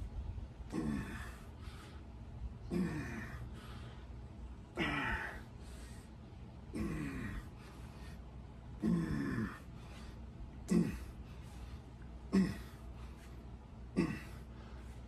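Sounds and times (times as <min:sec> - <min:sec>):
man exhaling hard with grunt: 0:04.7 - 0:05.5.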